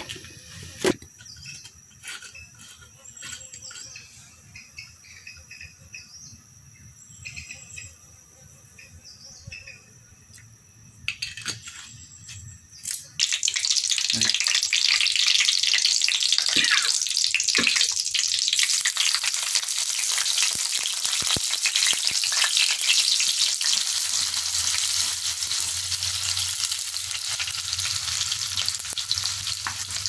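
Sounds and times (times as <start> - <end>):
insects chirping: 0.0 - 30.0
oil sizzling: 12.9 - 30.0
birds chirping: 16.5 - 17.1.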